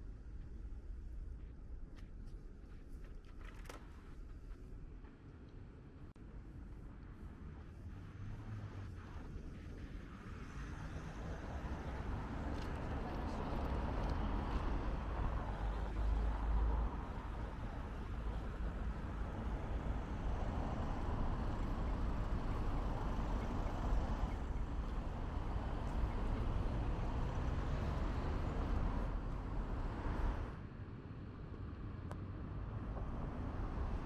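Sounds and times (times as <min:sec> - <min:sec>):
vehicles passing: 0:06.9 - 0:34.0.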